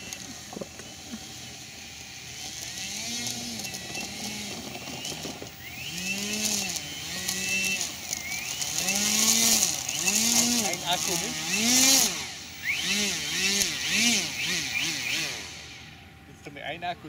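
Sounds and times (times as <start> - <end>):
model plane electric motor whine: 0.0 - 16.2.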